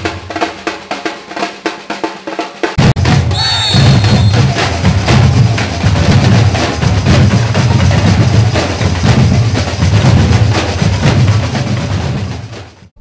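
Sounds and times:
percussion band samba groove: 0.0s - 12.9s
deep bass drums: 2.8s - 13.0s.

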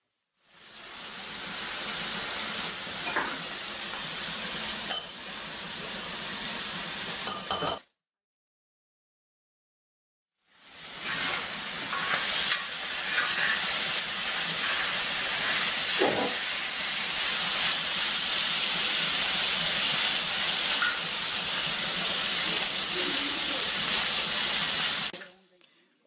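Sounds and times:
meat sizzling in oil: 0.4s - 7.8s, 10.4s - 25.2s.

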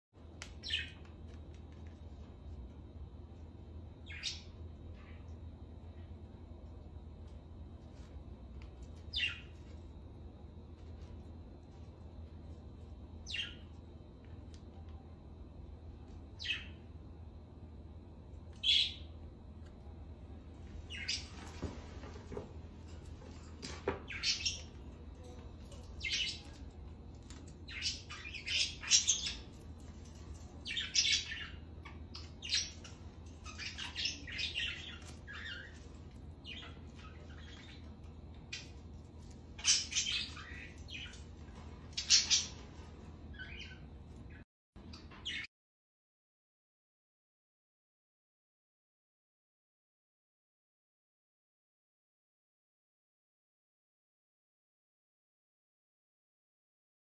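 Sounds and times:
parakeet squawking and chirping: 4.0s - 5.2s, 9.1s - 9.6s, 13.2s - 13.7s, 16.4s - 16.8s, 20.9s - 21.4s, 24.1s - 24.7s, 25.8s - 26.6s, 27.6s - 29.6s, 30.2s - 37.9s, 39.6s - 41.2s, 42.0s - 42.7s, 43.3s - 45.5s.

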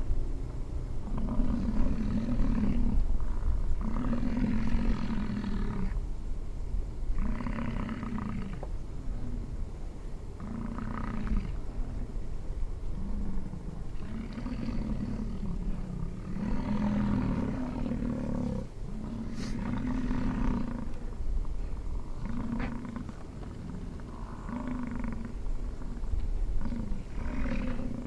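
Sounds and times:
bison bellowing: 12.9s - 21.0s, 21.8s - 28.0s.

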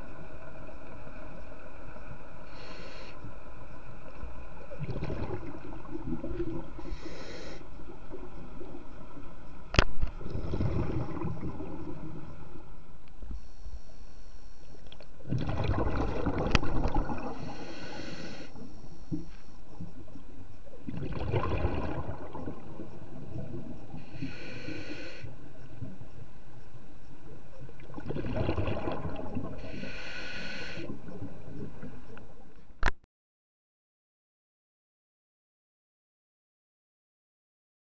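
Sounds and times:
regulator inhalation hiss: 2.4s - 3.3s, 6.7s - 7.8s, 17.3s - 19.7s, 23.9s - 25.4s, 29.6s - 31.1s
exhaled bubbles rumbling: 4.6s - 7.0s, 7.8s - 12.7s, 15.1s - 17.7s, 19.1s - 24.2s, 27.4s - 29.8s.

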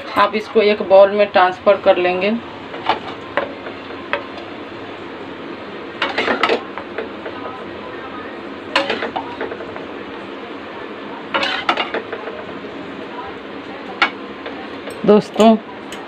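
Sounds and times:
steady background hum: 0.0s - 16.0s
spoon scraping a pan: 11.3s - 12.3s.

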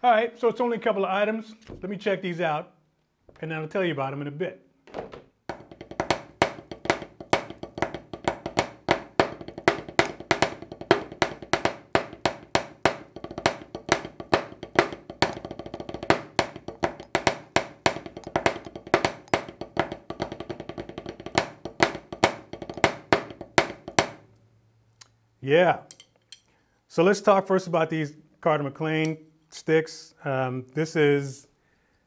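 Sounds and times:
snare drum played with sticks: 5.5s - 24.3s.

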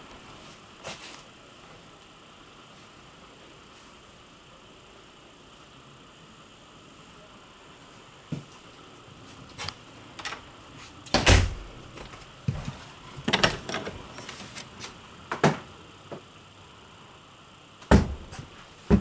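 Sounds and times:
knocks and thumps inside trailer: 17.9s - 19.0s.

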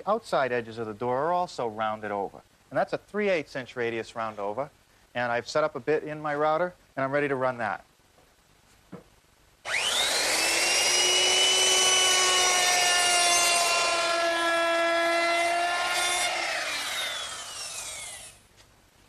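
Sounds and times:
electric router whining: 9.7s - 18.4s
router cutting wood: 9.7s - 18.4s.

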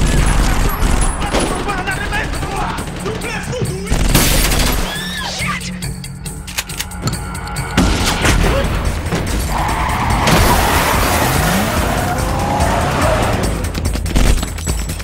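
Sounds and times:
cars running: 7.0s - 14.1s
tires skidding: 8.8s - 13.8s.

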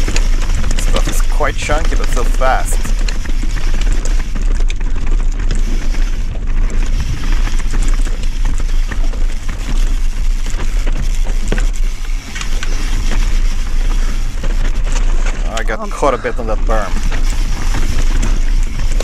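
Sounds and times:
bike rattling: 0.0s - 19.0s
tyres crunching over stones: 0.0s - 19.0s
wind on microphone: 5.5s - 15.6s.

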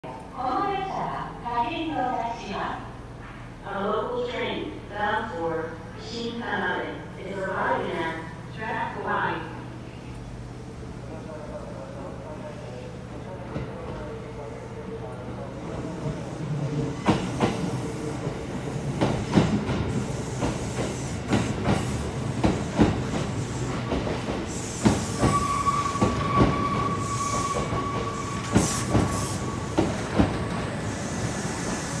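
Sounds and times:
high brake squeal: 25.0s - 30.0s.

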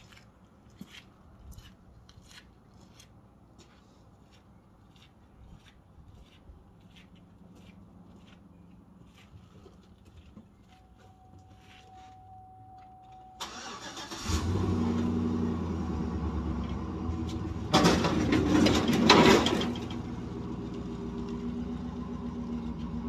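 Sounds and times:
truck engine cranking: 13.4s - 20.6s
truck engine idling and revving: 13.4s - 23.0s.

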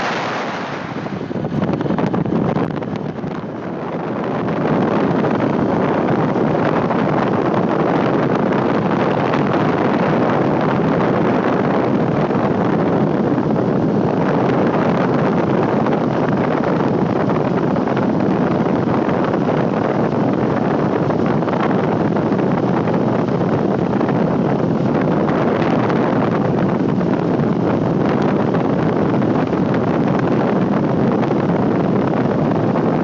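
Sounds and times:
scooter engine and road noise: 0.0s - 33.0s
wind rushing over microphone: 0.0s - 33.0s.

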